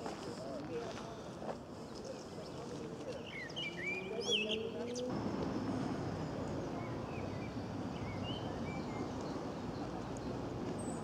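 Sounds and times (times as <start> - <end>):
steady outdoor rumble: 5.0 - 11.0.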